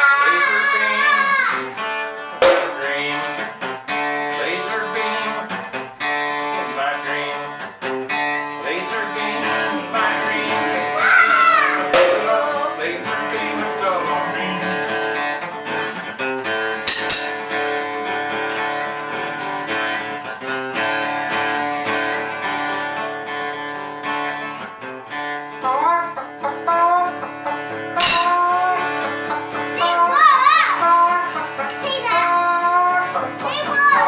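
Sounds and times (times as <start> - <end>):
acoustic guitar strumming: 0.0 - 34.0
sharp knock: 2.4 - 2.8, 12.0 - 12.3.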